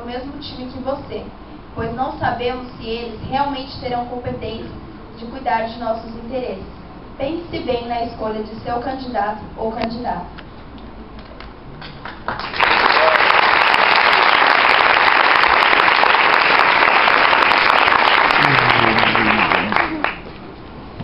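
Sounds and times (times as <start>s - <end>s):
audience applauding: 11.8s - 20.4s.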